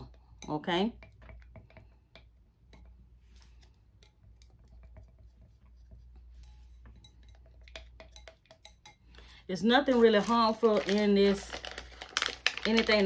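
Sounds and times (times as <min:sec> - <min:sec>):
stick scraping and tapping glass: 0:00.4 - 0:09.2.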